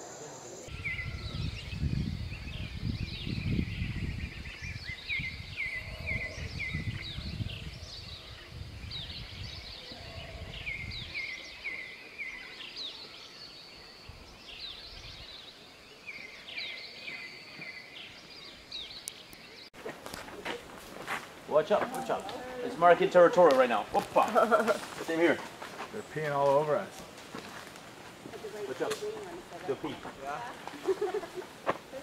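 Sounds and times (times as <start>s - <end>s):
birds chirping: 0.0s - 32.0s
distant howler monkeys roaring: 5.7s - 6.7s.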